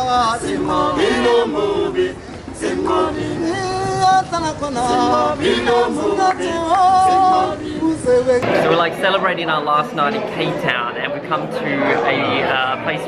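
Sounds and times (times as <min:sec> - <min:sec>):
men singing a cappella harmony: 0:00.0 - 0:08.5.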